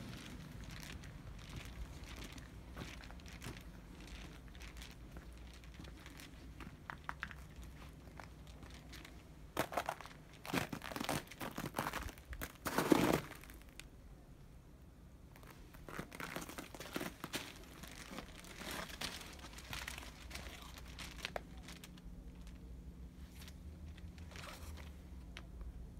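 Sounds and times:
footsteps crunching on snow: 9.6s - 13.6s, 15.9s - 21.2s.

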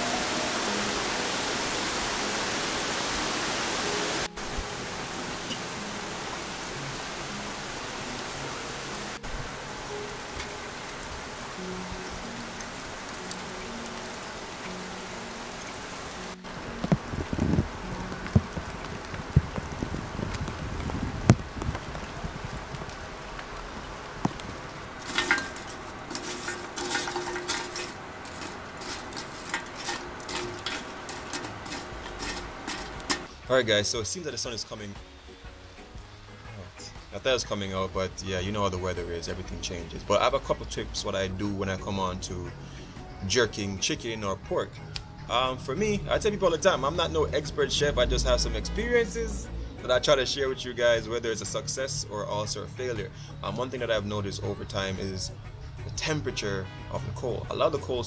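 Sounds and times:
steady rain falling: 0.0s - 58.0s
charcoal clinking in metal grill: 25.0s - 33.3s.

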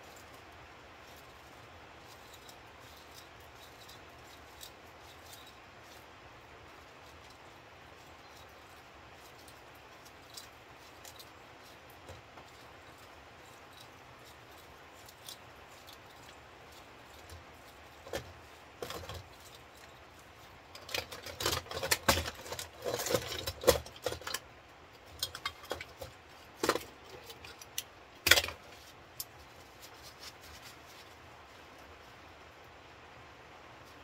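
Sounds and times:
metal parts clinking and clattering: 20.7s - 29.3s.

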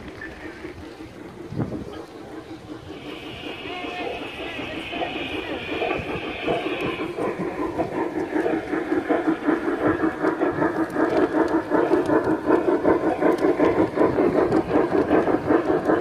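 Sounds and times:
model steam locomotive chuffing: 0.0s - 16.0s.

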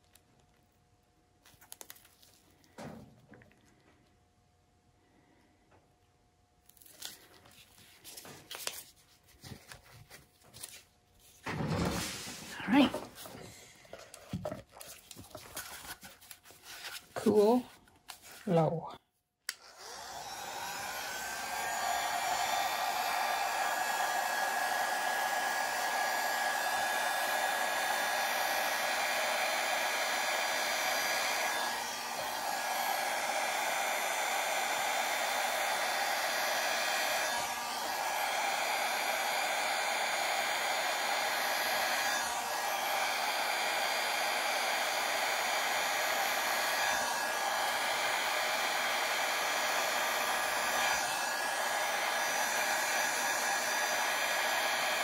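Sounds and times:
hair dryer blowing air: 11.4s - 14.4s, 17.2s - 18.8s, 19.5s - 55.0s.

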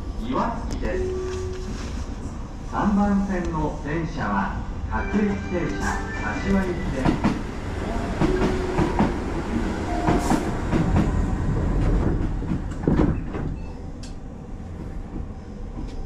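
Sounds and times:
train rumble: 0.0s - 16.0s
railway clanks and knocks: 4.7s - 16.0s.

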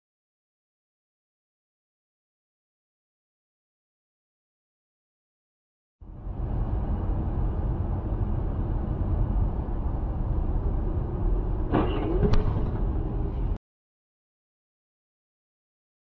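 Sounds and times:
car road and engine rumble: 6.0s - 13.6s.

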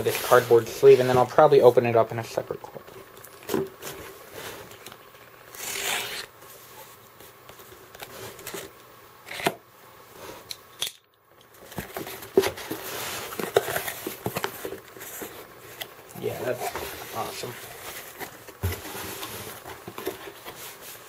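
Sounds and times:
cardboard flaps rustling and scraping: 0.0s - 1.5s, 11.6s - 21.0s
box cutter slitting packing tape: 5.5s - 6.3s.

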